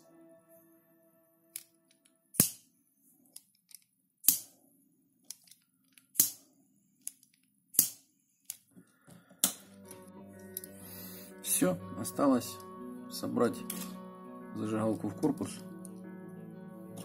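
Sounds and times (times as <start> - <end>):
piezo igniter snapping: 6.1 - 6.4.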